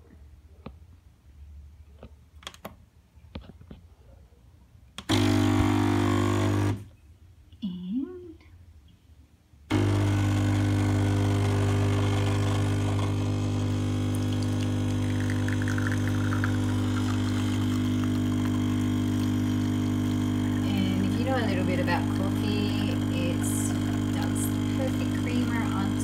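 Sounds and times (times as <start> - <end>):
espresso machine pump humming: 5.1 - 6.8, 9.7 - 26.0
espresso pouring into cup: 9.7 - 26.0.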